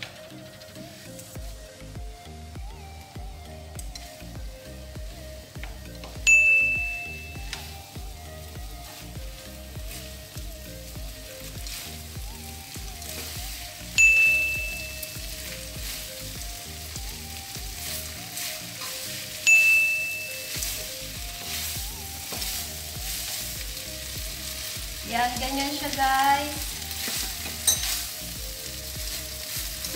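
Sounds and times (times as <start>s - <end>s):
background music: 0.0s - 29.9s
noodles sizzling in a frying pan: 0.0s - 29.9s
spatula and chopsticks turning food: 0.0s - 29.9s
bright ding tones: 6.2s - 7.6s, 14.0s - 15.2s, 19.4s - 20.6s, 27.6s - 28.0s.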